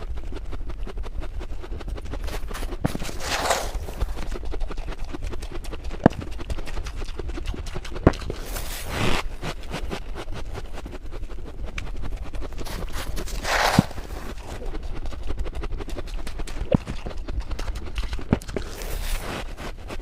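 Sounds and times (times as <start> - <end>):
frost crunching in mouth: 0.0 - 20.0
frost crumbling rustle: 2.2 - 4.3, 12.6 - 14.6.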